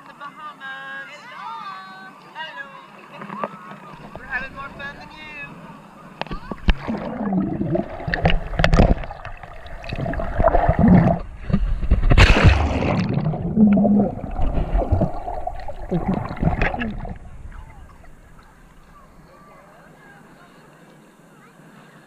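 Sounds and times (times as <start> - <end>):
sea water splashing: 2.9 - 20.6.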